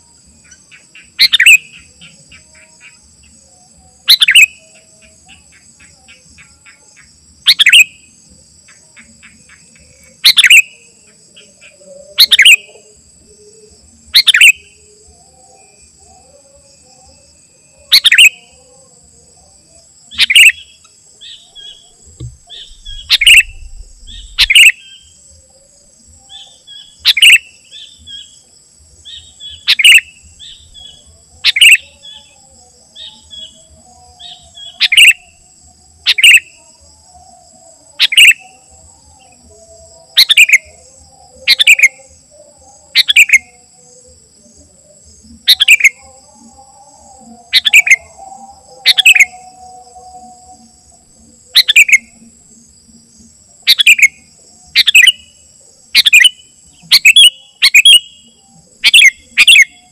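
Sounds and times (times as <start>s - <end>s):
soft bird chirps: 0.0s - 8.1s, 8.7s - 15.8s, 17.2s - 18.6s, 20.1s - 28.4s, 29.0s - 36.6s, 42.8s - 43.6s, 48.8s - 49.5s, 51.5s - 52.2s, 53.6s - 59.9s
high insect drone: 0.0s - 59.9s
bird sharp calls: 0.4s - 3.0s, 4.1s - 7.9s, 9.0s - 12.7s, 14.2s - 14.7s, 17.9s - 18.5s, 20.1s - 25.2s, 26.3s - 28.3s, 29.1s - 32.2s, 34.2s - 35.4s, 36.1s - 36.5s, 38.0s - 38.5s, 40.2s - 40.8s, 41.5s - 42.0s, 43.0s - 43.5s, 45.5s - 46.0s, 47.5s - 48.1s, 48.8s - 49.4s, 51.6s - 52.1s, 53.7s - 54.2s, 54.8s - 55.2s, 56.0s - 59.9s.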